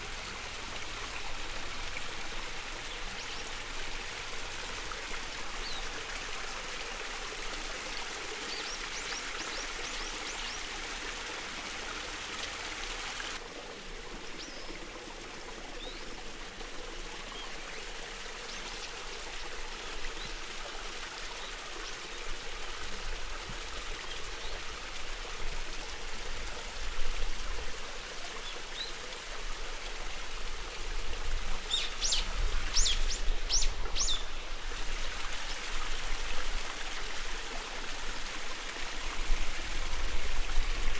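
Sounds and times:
flowing water rushing: 0.0s - 40.9s
birds chirping: 31.7s - 34.5s.

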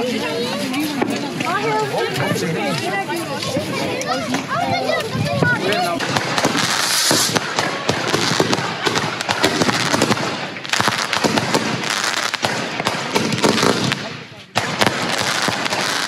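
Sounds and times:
fireworks bangs and crackles: 0.1s - 16.0s
fireworks hissing: 5.4s - 16.0s.

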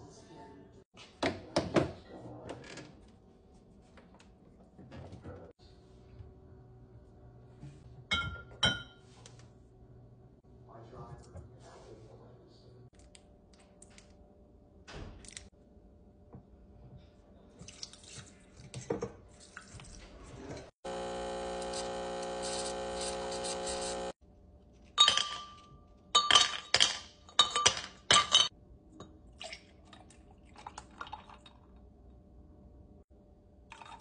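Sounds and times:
espresso machine pump humming: 20.8s - 24.2s.

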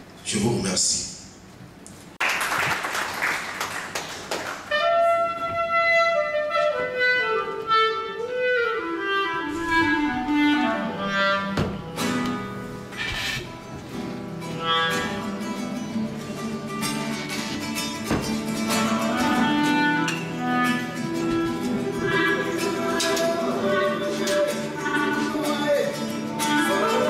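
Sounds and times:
people clapping: 2.2s - 4.8s
acoustic guitar accompaniment: 4.6s - 27.0s
clarinet melody: 4.7s - 15.9s, 18.5s - 27.0s.

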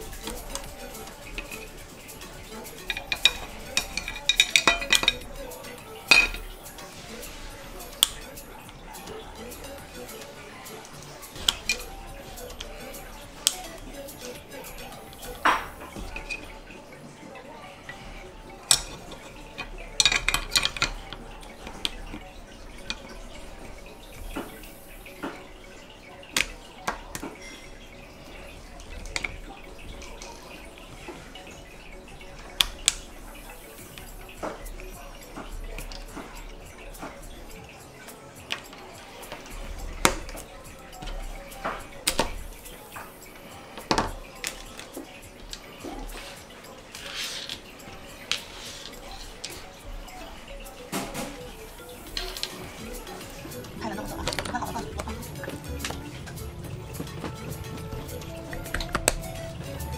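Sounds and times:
metal parts clicking and knocking: 0.0s - 16.6s, 18.6s - 25.4s.

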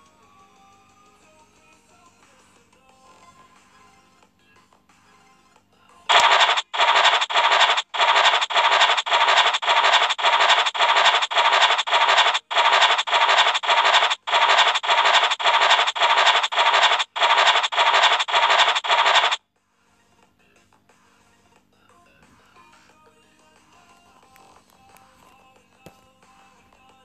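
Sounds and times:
scratching sound effect: 6.1s - 19.4s.

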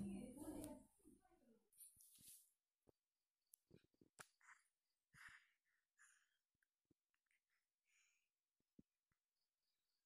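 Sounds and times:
soft rustle: 1.7s - 2.6s.

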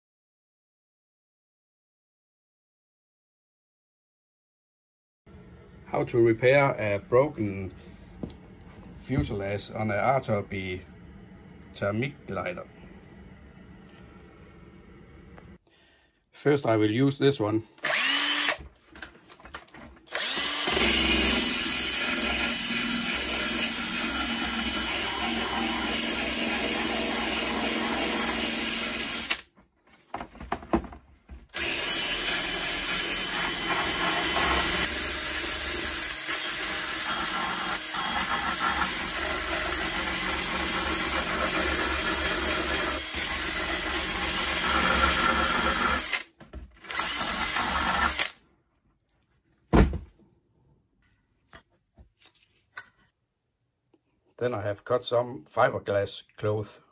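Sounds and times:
drill sanding fiberglass: 17.9s - 18.7s, 20.1s - 29.4s, 31.6s - 46.2s, 46.8s - 48.3s.

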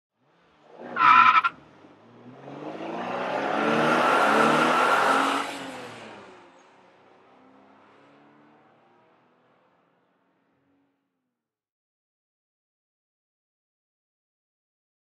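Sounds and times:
car engine revving: 0.4s - 9.1s
tyre squeal: 1.0s - 1.6s.

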